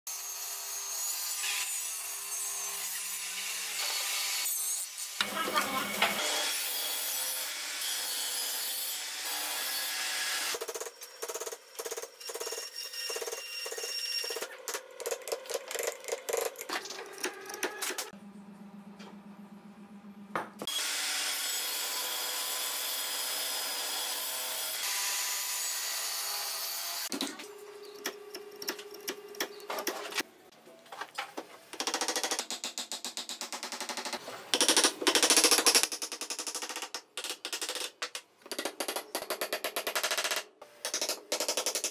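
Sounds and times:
table saw cutting wood: 0.1 - 14.6, 20.6 - 27.1.

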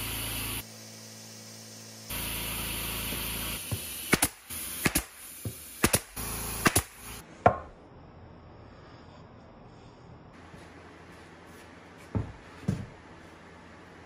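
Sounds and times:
steady mechanical hum: 0.0 - 14.0
pneumatic nailer firing: 2.1 - 7.2.

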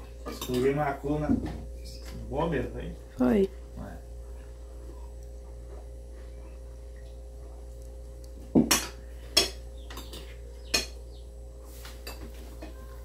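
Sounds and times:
cutlery clinking against plates: 0.2 - 0.8, 8.6 - 11.0, 12.0 - 12.8.

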